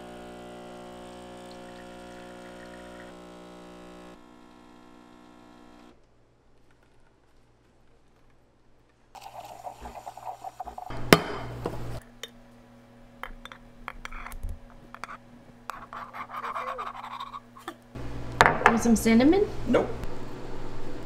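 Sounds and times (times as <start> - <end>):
frothed milk pouring into mug: 1.0 - 3.2, 9.2 - 10.9.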